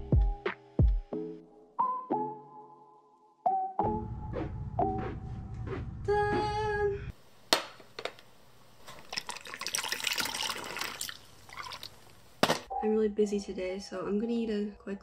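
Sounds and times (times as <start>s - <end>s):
clinking and splashing: 9.0s - 12.7s.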